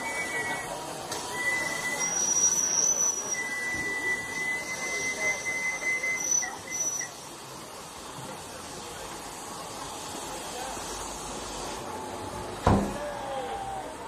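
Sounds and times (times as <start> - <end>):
high-pitched steam train squealing: 0.0 - 7.4
steady hiss: 0.2 - 14.0.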